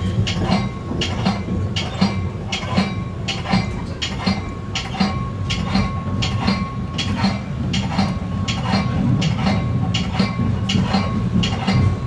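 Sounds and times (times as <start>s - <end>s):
train wheels clicking over rail joints: 0.0s - 12.0s.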